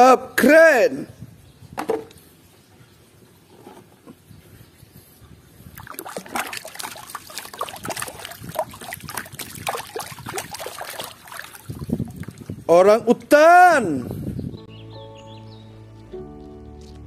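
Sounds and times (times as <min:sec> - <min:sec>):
water splashing in a plastic tub: 0:05.7 - 0:12.7.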